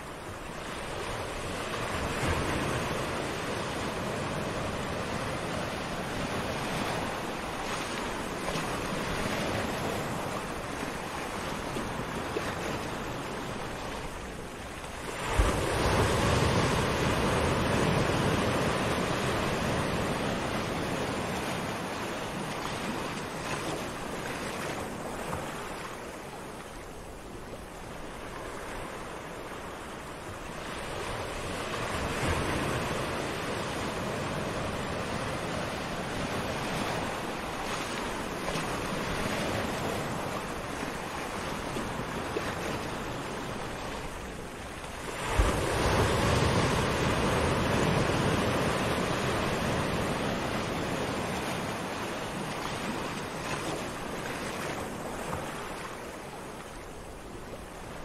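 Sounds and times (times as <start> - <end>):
small waves washing onto sand: 0.0 - 58.0.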